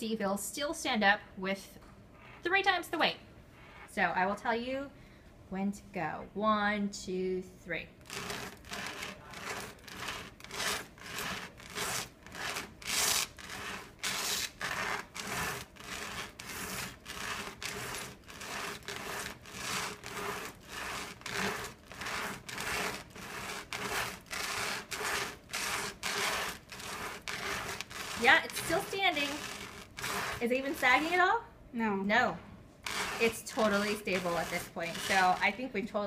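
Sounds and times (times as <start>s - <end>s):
trays scraping across tabletop: 8.0s - 31.2s, 32.8s - 35.6s.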